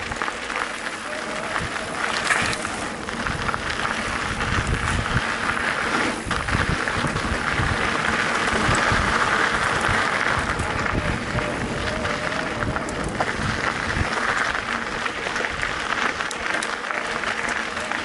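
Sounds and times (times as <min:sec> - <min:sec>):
bike rattling and knocking: 0:00.0 - 0:18.0
bike tyres crunching on gravel: 0:00.0 - 0:18.0
wind on microphone: 0:01.2 - 0:15.9.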